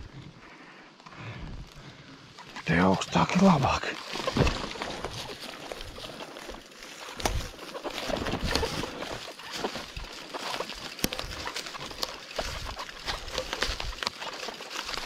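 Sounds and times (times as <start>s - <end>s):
rustling undergrowth: 0.0s - 15.0s
squelches in wet undergrowth: 0.0s - 15.0s
twigs snapping: 3.4s - 15.0s.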